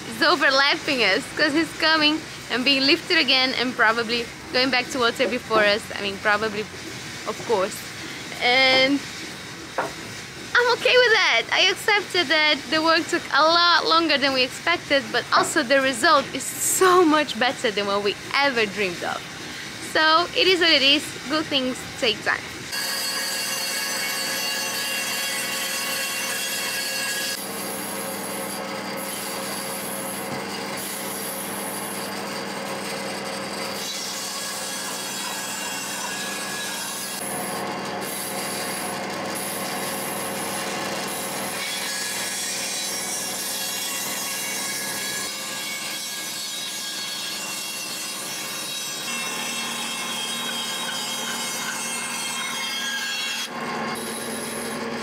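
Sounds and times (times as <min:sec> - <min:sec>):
bandsaw cutting wood: 0:00.0 - 0:09.0, 0:22.3 - 0:55.0.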